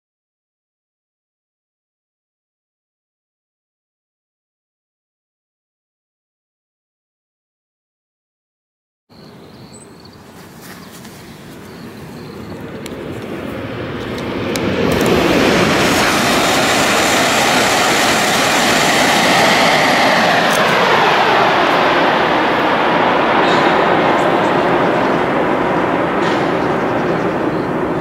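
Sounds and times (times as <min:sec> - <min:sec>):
high-speed train passing: 0:09.1 - 0:28.0.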